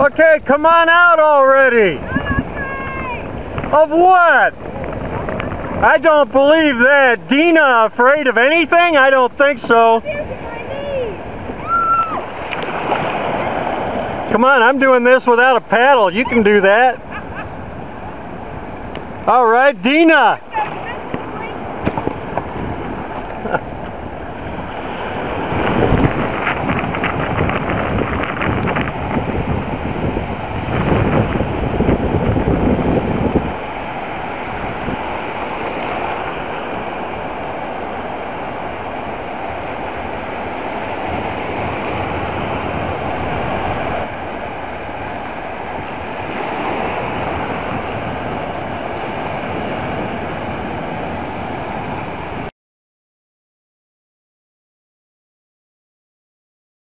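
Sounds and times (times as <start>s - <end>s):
small surf breaking: 0.0s - 52.5s
wind buffeting microphone: 1.2s - 7.4s, 20.4s - 52.5s.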